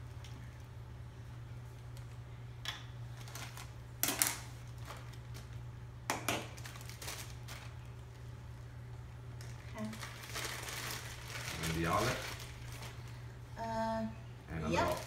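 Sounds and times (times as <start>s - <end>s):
steady low hum: 0.0s - 15.0s
plastic bags crinkling: 3.1s - 5.6s, 6.5s - 8.3s, 9.4s - 13.3s, 14.7s - 15.0s.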